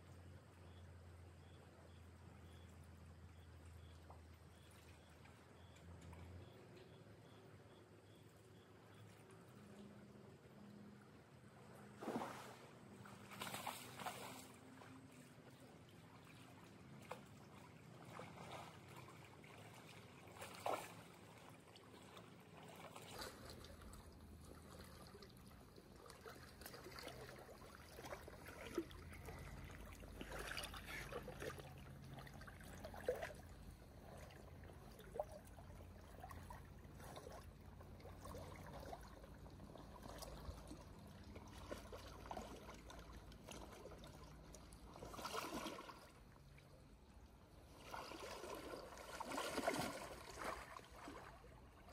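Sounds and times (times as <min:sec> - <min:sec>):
river trickling and gurgling: 0:00.0 - 0:51.9
person wading through water: 0:11.7 - 0:51.9.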